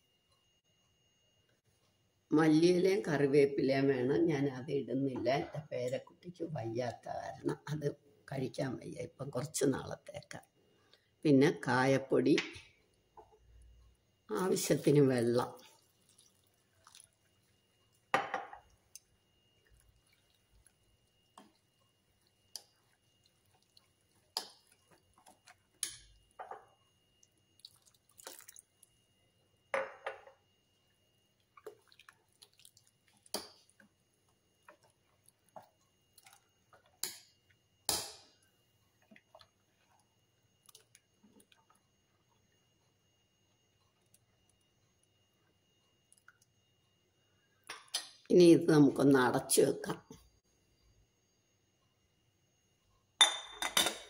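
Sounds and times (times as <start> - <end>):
batter sloshing: 14.4 - 18.7, 27.4 - 29.0, 31.5 - 33.8
spoon clinking against glass: 53.2 - 54.0.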